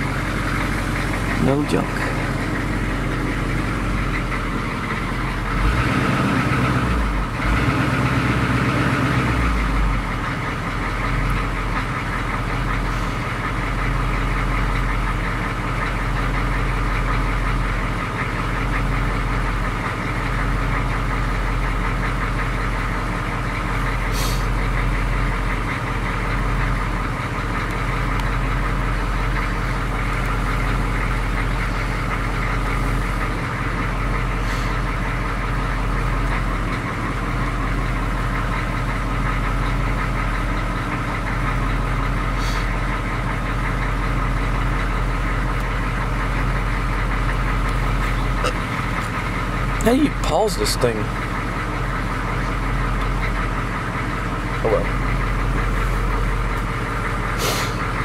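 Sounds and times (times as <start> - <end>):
diesel engine idling: 0.0 - 58.0.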